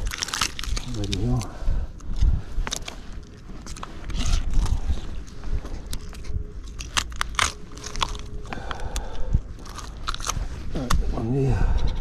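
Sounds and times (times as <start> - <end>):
knife crunching through fish bones: 0.0 - 1.2, 5.9 - 8.5, 9.6 - 10.4.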